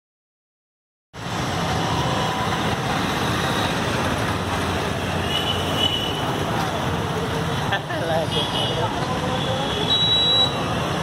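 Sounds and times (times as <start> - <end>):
street traffic rumble: 1.2 - 11.0.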